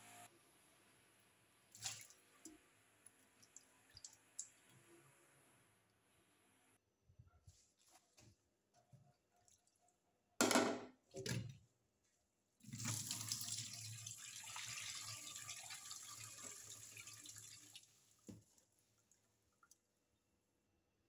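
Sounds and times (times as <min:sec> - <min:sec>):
water splashing into metal bowl: 0:01.7 - 0:02.2
water running into sink: 0:12.6 - 0:17.8.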